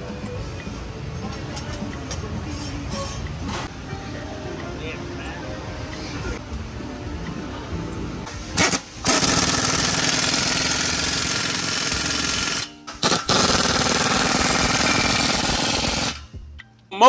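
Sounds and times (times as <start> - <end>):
pneumatic impact wrench rattling: 8.4 - 16.3.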